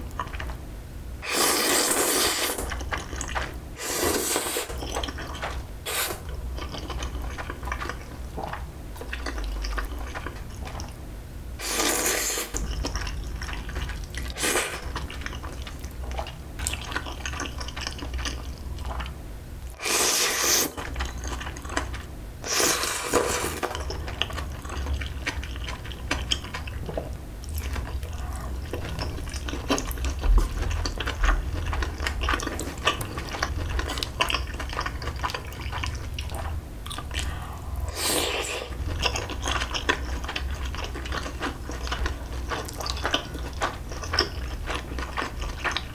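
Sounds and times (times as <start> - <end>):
person slurping noodles: 1.2 - 2.6, 3.8 - 4.8, 5.9 - 6.2, 11.6 - 12.6, 19.8 - 20.8, 37.2 - 38.8
wet chewing: 1.3 - 11.0, 11.6 - 19.2, 19.8 - 45.9.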